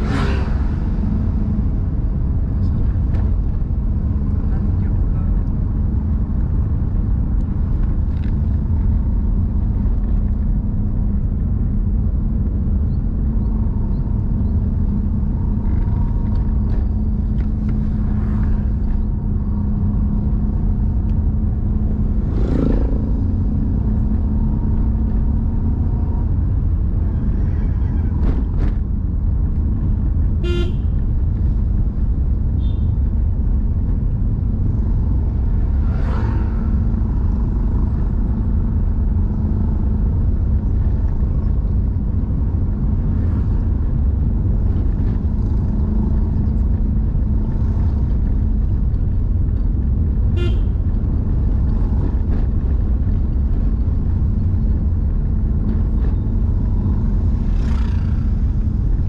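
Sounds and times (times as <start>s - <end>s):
car road and engine rumble: 0.0s - 59.0s
vehicle horn toot: 30.4s - 31.0s, 32.6s - 33.0s, 50.4s - 50.8s.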